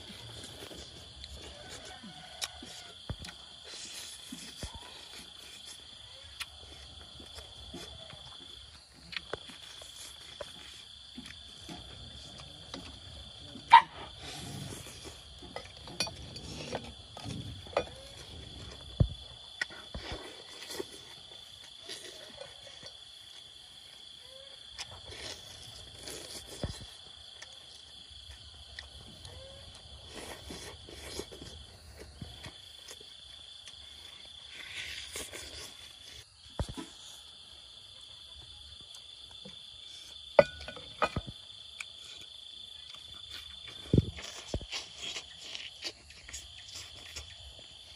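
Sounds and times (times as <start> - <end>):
chewing and crunching: 0.0 - 47.9
crickets trilling: 0.0 - 47.9
clicks and taps of clay dishes: 40.4 - 41.4.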